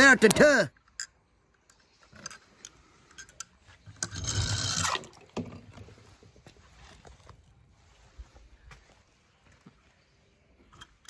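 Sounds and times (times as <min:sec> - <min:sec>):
water splashing in plastic tub: 0:04.2 - 0:06.4.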